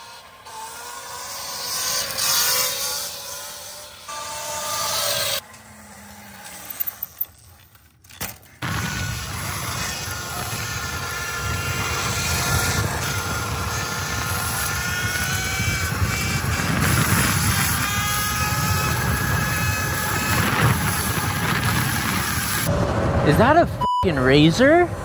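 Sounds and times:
electric motor whine: 0.0 - 6.9, 8.6 - 22.8.

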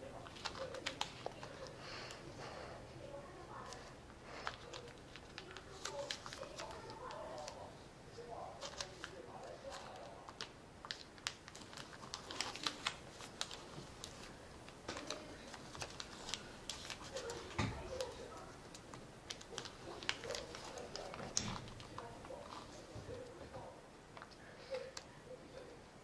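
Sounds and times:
paper crackling as folded: 0.0 - 2.2, 3.5 - 7.8, 8.4 - 23.4.

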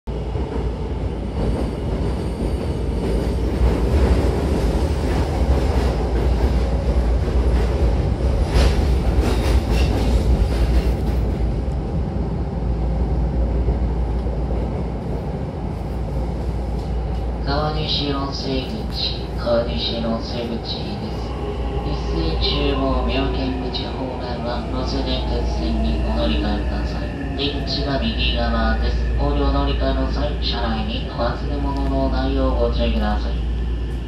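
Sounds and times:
train wheels rumbling on rail: 0.1 - 34.0.

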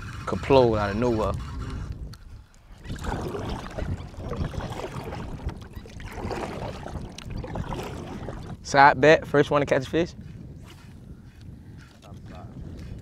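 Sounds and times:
water lapping against hull: 0.0 - 8.9
wind buffeting microphone: 0.0 - 13.0.

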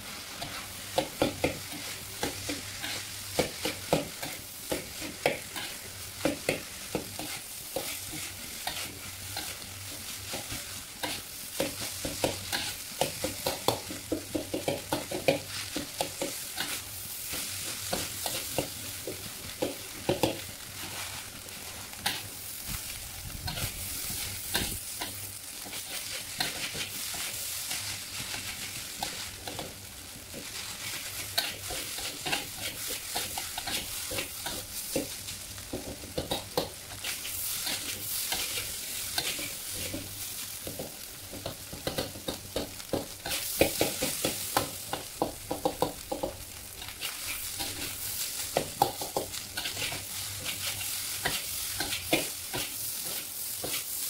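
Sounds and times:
food sizzling: 0.0 - 54.0
metal spatula scraping wok: 49.6 - 53.8.

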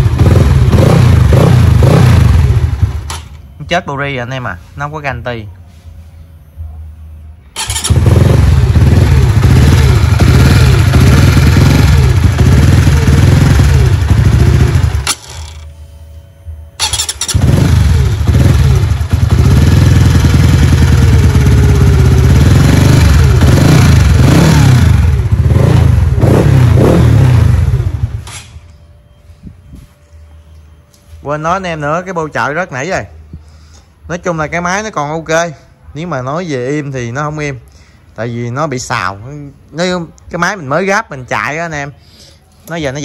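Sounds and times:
motorcycle engine revving: 0.0 - 3.4, 7.6 - 15.7, 16.8 - 28.6.

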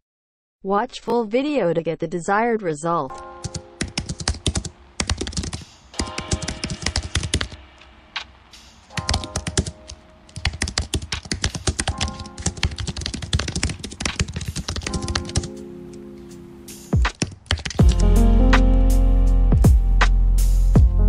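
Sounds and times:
background music: 2.6 - 21.0
computer keyboard typing: 3.1 - 7.6, 8.9 - 15.6, 17.0 - 18.2.

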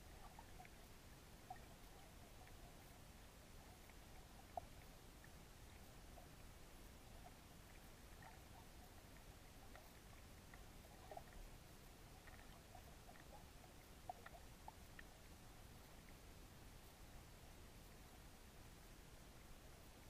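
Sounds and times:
faint underwater rumble: 0.0 - 20.0.

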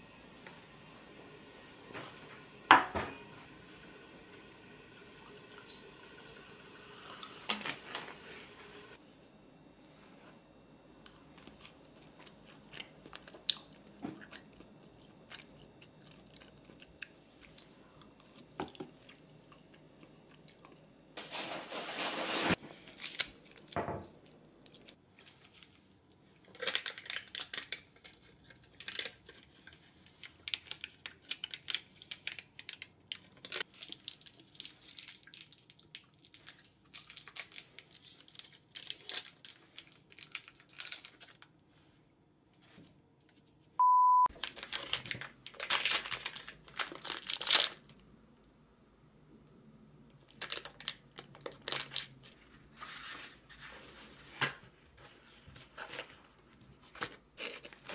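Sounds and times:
person chewing crunchy food: 11.2 - 20.9, 56.9 - 57.9
rustling: 21.2 - 22.6
foil wrapper crinkling: 21.2 - 23.8, 24.7 - 41.6, 44.4 - 48.0, 50.3 - 52.5, 55.8 - 57.9.

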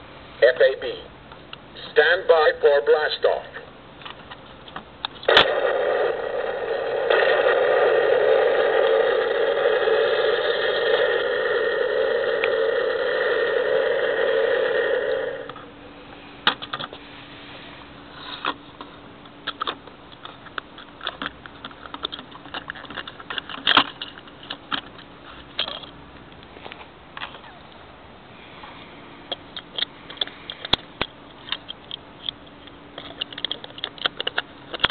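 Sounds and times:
toy rocket engine roar: 5.3 - 15.5
plastic toy clicks and knocks: 33.0 - 34.9.

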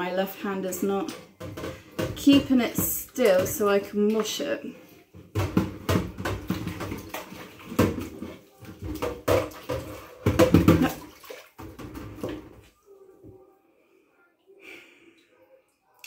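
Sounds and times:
water sloshing in sink: 0.6 - 12.7.

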